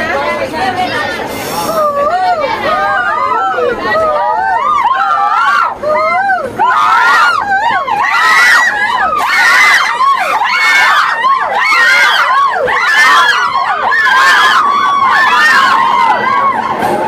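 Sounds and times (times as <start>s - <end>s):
crowd shouting and screaming: 1.5s - 17.0s.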